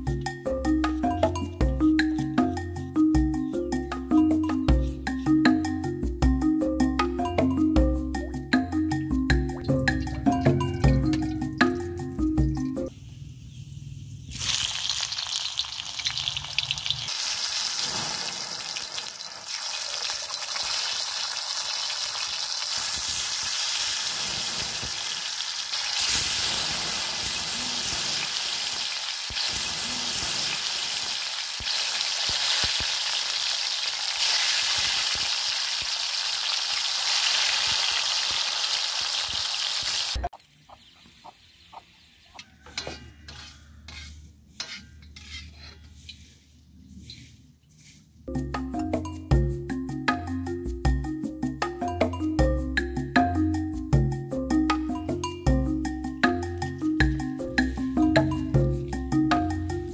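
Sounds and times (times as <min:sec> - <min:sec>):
onions sizzling in hot oil: 0:13.0 - 0:40.3
metal spatula scraping wok: 0:16.0 - 0:20.1, 0:42.4 - 0:48.3.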